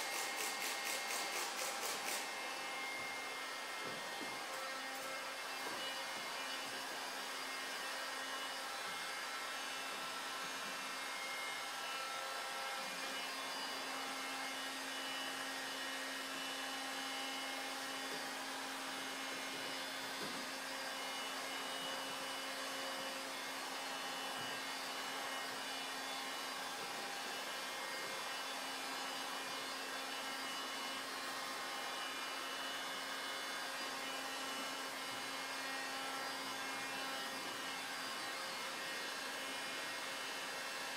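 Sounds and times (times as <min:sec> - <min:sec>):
heat gun fan humming: 0:00.0 - 0:08.5.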